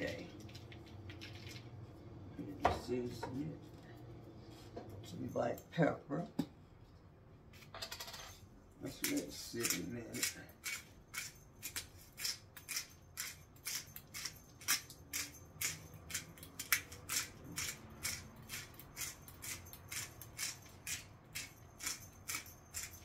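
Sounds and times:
pepper grinder strokes: 9.0 - 23.0.

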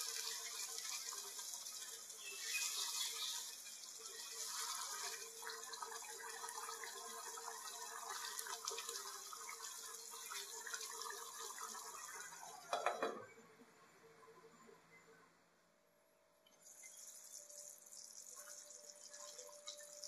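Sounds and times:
gravy bubbling and sizzling: 0.0 - 15.2, 16.5 - 20.0
glass lid knocking on pan: 12.7 - 13.2.

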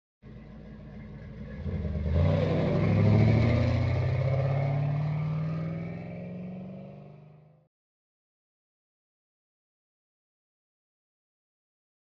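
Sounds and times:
car engine idling and revving: 0.2 - 7.7.

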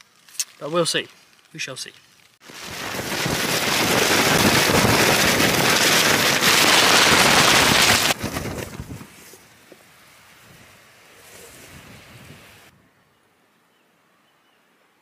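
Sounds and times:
wind gust rushing over tent: 2.4 - 9.4, 10.4 - 12.7.

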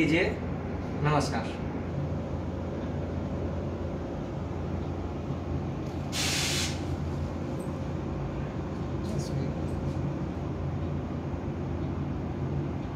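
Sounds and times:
low background hum: 0.0 - 12.9
short burst of hiss: 6.1 - 6.9.

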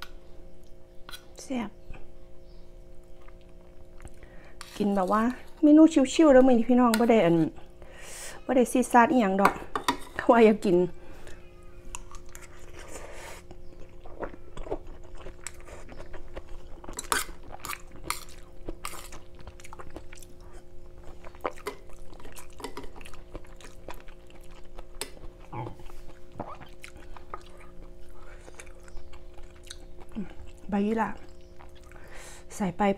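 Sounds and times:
faint hum: 0.0 - 32.9
close chewing: 3.1 - 4.8, 12.0 - 32.0
metal spoon scraping bowl: 4.6 - 5.7.

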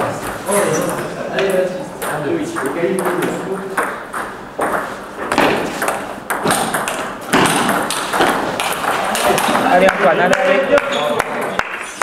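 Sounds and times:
table tennis ball clicks: 5.8 - 9.7.

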